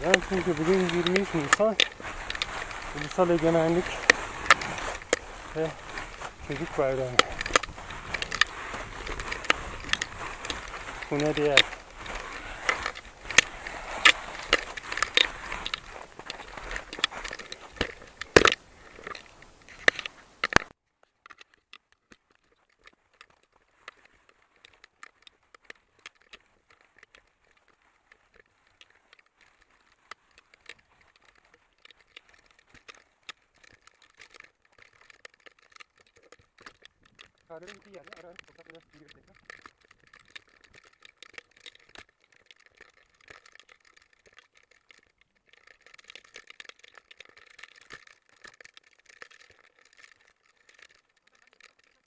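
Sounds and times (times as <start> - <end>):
footsteps crunching through snow: 0.0 - 20.8, 22.4 - 35.0.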